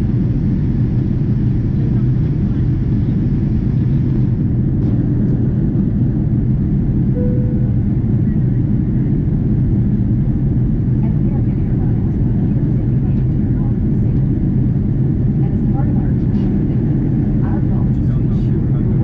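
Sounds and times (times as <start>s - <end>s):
jet engine roar in cabin: 0.0s - 19.0s
faint tone: 7.2s - 8.4s.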